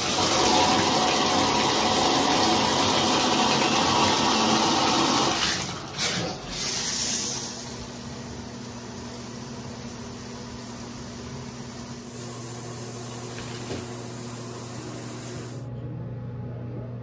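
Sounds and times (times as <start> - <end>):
shower spraying on tiled wall: 0.0 - 15.6
low steady hum: 12.0 - 17.0.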